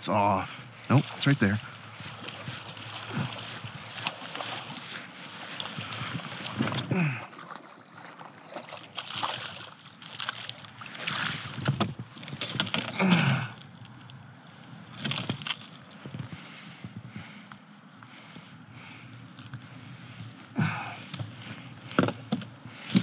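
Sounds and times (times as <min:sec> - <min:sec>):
water splashing around kayak: 0:00.0 - 0:23.0.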